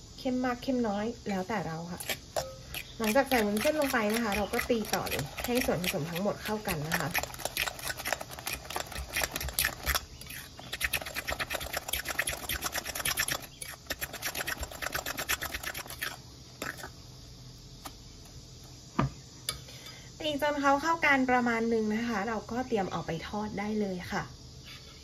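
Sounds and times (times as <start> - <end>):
fork scraping glass bowl: 2.0 - 16.9.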